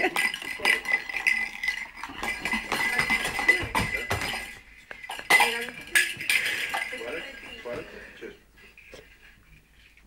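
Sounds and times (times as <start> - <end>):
small hard objects clinking: 0.0 - 7.8.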